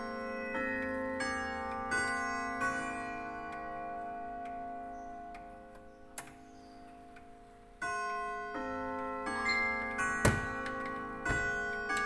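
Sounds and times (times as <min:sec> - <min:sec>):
grandfather clock chiming: 0:00.0 - 0:06.1, 0:06.8 - 0:12.0
clock ticking: 0:03.3 - 0:06.4.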